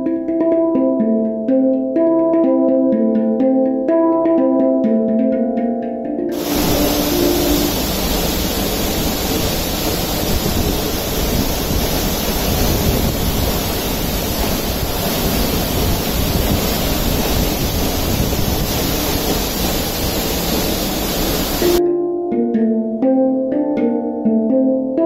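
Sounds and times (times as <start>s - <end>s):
waterfall rushing: 6.3s - 21.8s.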